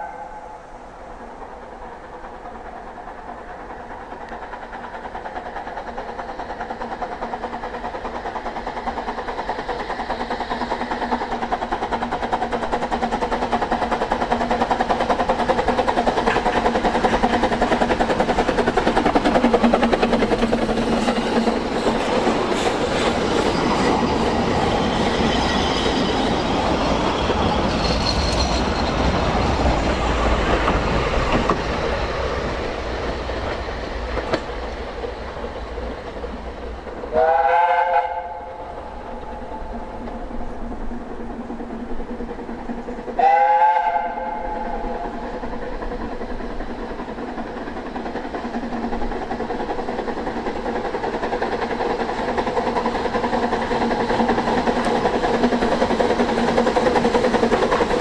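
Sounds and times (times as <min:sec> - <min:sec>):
steam whistle: 0:00.0 - 0:01.0, 0:37.1 - 0:38.7, 0:43.2 - 0:45.0
train rumbling on rails: 0:00.0 - 0:58.0.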